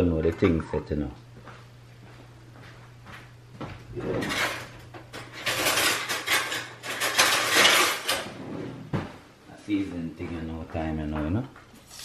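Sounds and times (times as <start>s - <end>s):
pots and dishes clattering: 4.0s - 8.4s.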